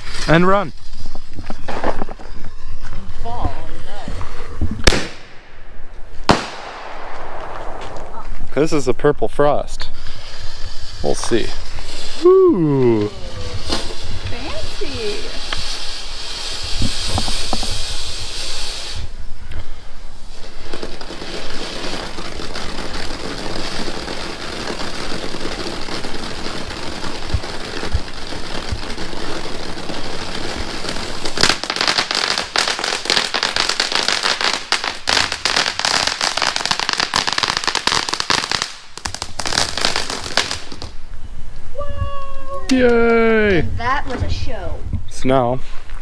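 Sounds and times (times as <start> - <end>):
firework hissing: 0.0 - 44.7
firework crackling: 0.0 - 46.0.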